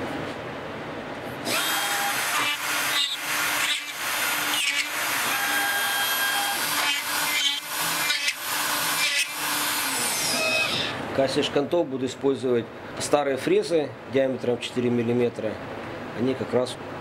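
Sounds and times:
router spindle drilling wood: 1.4s - 11.0s.

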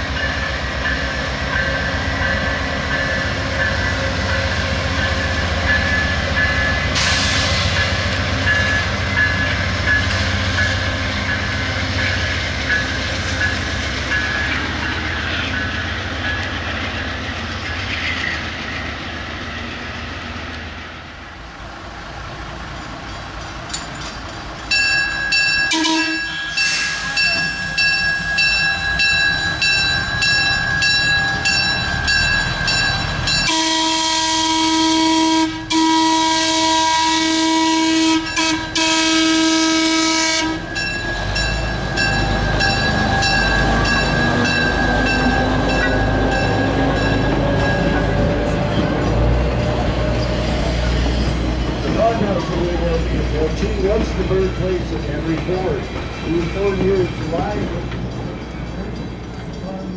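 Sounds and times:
locomotive bell ringing: 0.0s - 17.5s, 22.5s - 59.9s
engine and wheels rumbling: 0.0s - 36.2s, 37.2s - 59.9s
locomotive horn: 25.7s - 27.4s, 33.4s - 40.7s.

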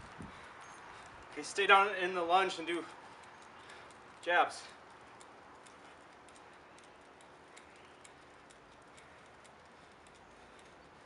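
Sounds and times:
faint light ticks: 2.9s - 11.0s.

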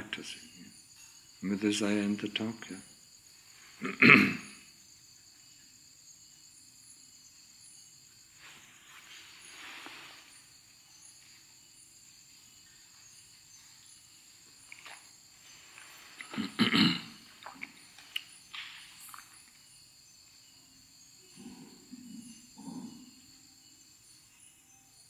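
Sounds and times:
crickets trilling: 0.0s - 25.0s
faint chirp: 17.2s - 25.0s.

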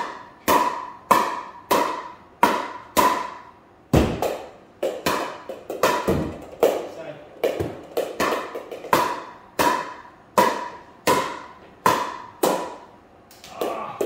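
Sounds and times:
paddle striking plastic ball: 0.0s - 6.8s, 7.4s - 12.9s.

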